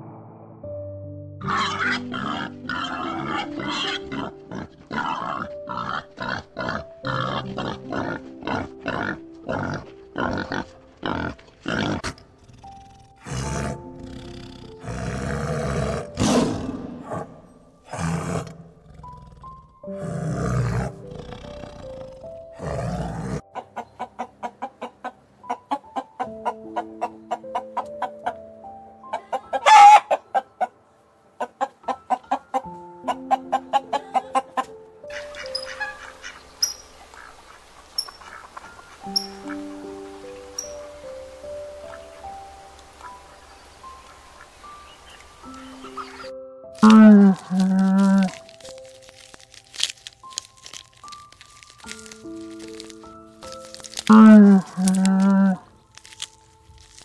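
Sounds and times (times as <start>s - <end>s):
soft instrumental music: 0.5s - 57.0s
tiger growling and roaring: 1.4s - 23.5s, 46.8s - 48.8s, 51.8s - 56.2s
young boars grunting: 1.4s - 23.5s, 45.4s - 56.1s
hens clucking: 23.4s - 28.5s, 29.1s - 30.8s, 31.4s - 40.9s.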